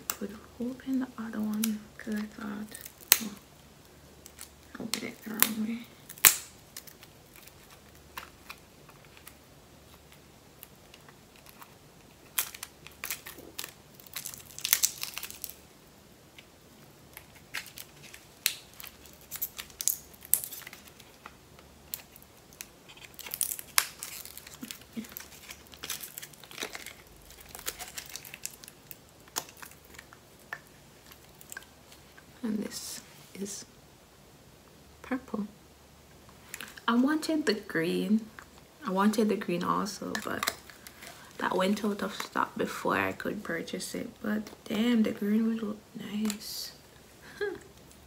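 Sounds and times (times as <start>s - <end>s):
plastic wrapping crinkling and tearing: 0.0s - 3.6s, 4.2s - 15.7s, 16.3s - 32.4s, 39.8s - 42.8s.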